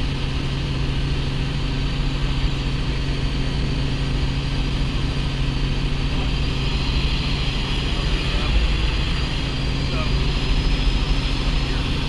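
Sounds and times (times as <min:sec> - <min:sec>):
helicopter engine and rotor drone: 0:00.0 - 0:12.0.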